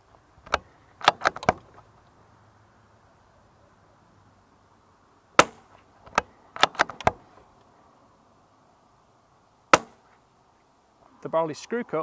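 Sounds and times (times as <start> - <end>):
rifle bolt clicks: 0.5 - 1.6, 6.1 - 7.2
rifle shot: 5.4 - 5.7.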